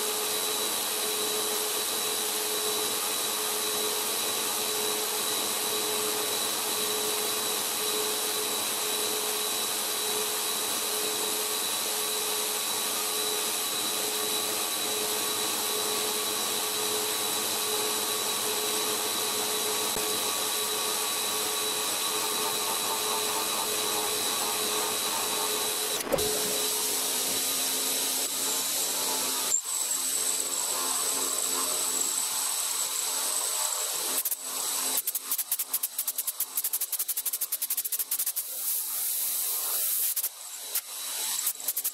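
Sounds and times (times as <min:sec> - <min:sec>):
milling machine spindle whine: 0:00.0 - 0:35.0, 0:38.7 - 0:41.8
metal cutting hiss: 0:34.2 - 0:41.9.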